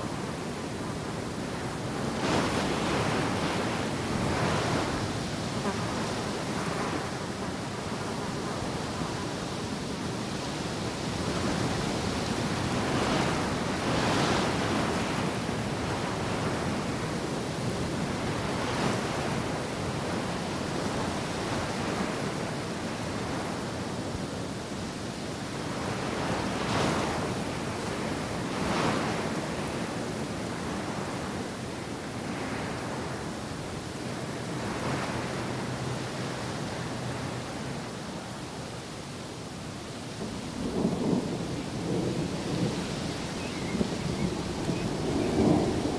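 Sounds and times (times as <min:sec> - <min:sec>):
wind gusting: 0:01.6 - 0:07.0, 0:40.2 - 0:45.9.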